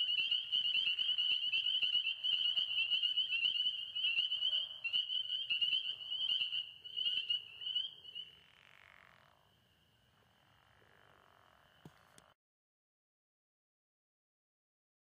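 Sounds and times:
frogs calling: 0.0 - 12.3.

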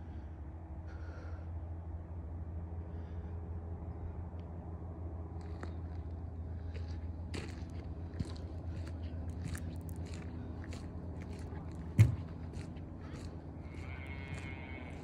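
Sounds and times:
steady low hum: 0.0 - 15.0
footsteps on gritty concrete: 6.7 - 15.0.

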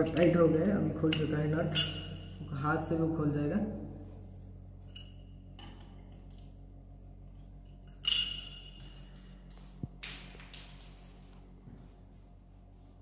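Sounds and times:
ringing metal clink: 1.1 - 2.5, 4.8 - 6.0, 7.7 - 9.5.

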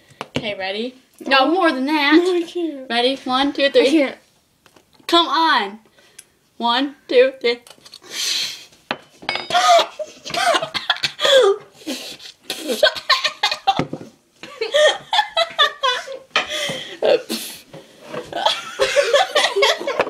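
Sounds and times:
young women laughing: 9.5 - 11.6, 12.5 - 17.2, 18.3 - 20.0
breathy outbursts: 16.4 - 17.7.

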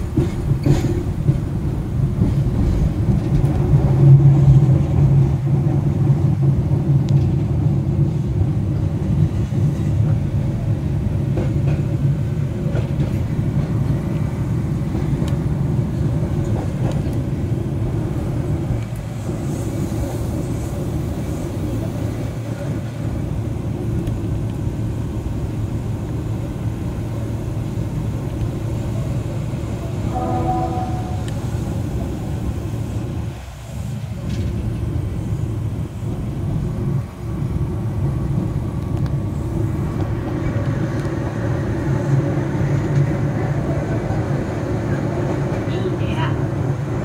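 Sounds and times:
tram rumbling on rails: 0.0 - 47.0.

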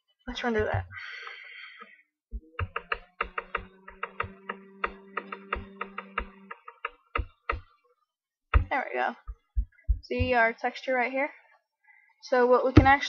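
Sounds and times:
sharp taps with low thuds: 8.5 - 10.5, 12.8 - 13.0.

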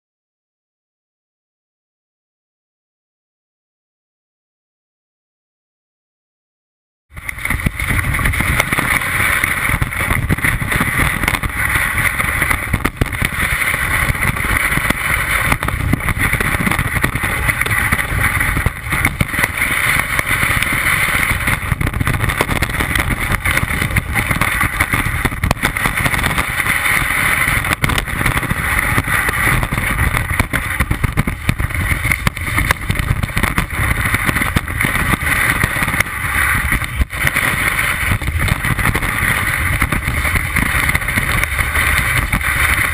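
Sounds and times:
low rumble: 7.1 - 42.9
rush of wind and snow: 7.1 - 42.9.

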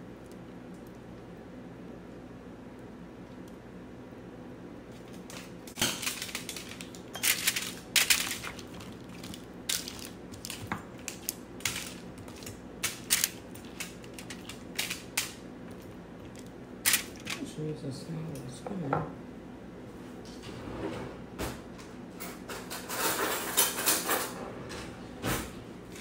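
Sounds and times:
aluminium foil crinkling: 4.9 - 17.4
spoon scraping on foil: 5.2 - 15.0.

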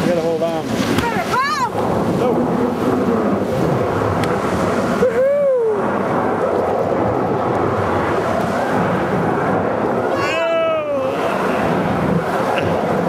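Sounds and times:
rushing water: 0.0 - 13.0
wind on microphone: 0.0 - 13.0
person whooping: 5.0 - 5.9, 10.1 - 11.3.

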